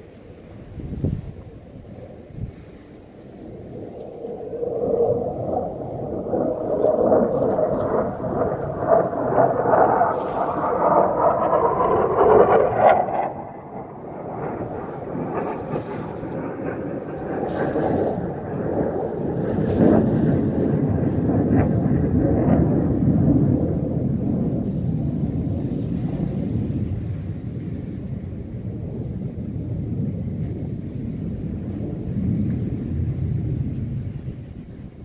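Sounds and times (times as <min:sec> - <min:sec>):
wind buffeting microphone: 0:00.0 - 0:35.0
sea washing against rocks: 0:06.4 - 0:13.0, 0:14.7 - 0:20.8.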